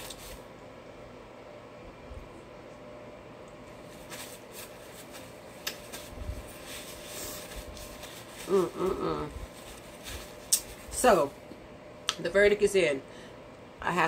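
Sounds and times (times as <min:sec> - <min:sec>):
low room noise: 0:00.0 - 0:14.0
rustles: 0:03.8 - 0:11.0
lip smacks: 0:10.5 - 0:10.7.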